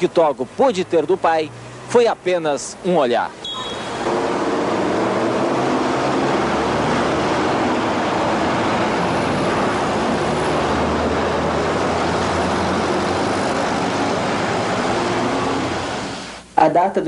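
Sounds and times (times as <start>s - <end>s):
passing cars: 0.0s - 16.4s
low engine drone: 3.4s - 16.4s.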